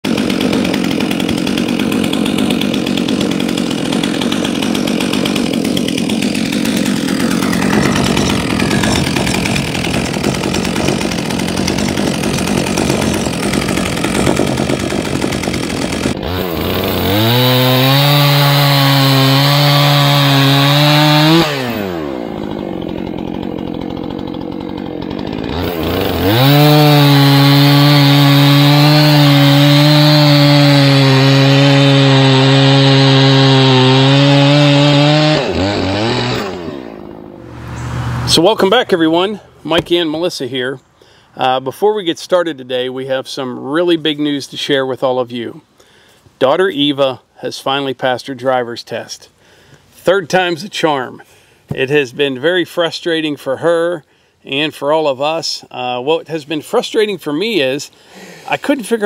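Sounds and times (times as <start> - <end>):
chainsaw cutting log: 0.0 - 40.4, 49.4 - 53.8, 56.6 - 59.0
chainsaw revving: 0.0 - 40.4, 58.0 - 59.0.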